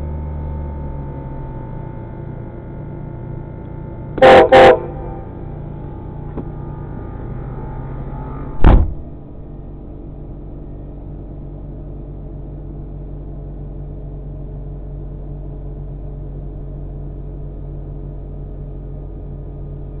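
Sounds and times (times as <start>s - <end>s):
vehicle engine idling: 0.0s - 20.0s
loud short thump: 8.4s - 9.2s.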